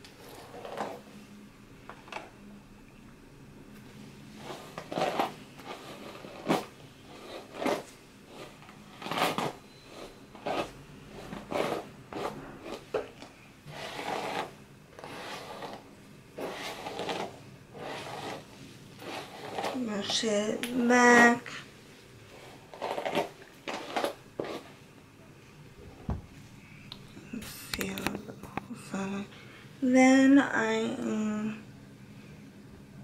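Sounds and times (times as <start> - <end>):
hairbrush swishing through hair: 4.4 - 12.9, 13.7 - 15.8, 16.4 - 19.9, 22.4 - 24.8.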